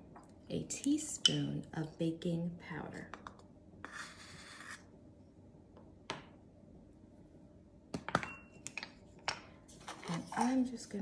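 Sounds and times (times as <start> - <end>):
spoon scraping powder in can: 3.8 - 4.9.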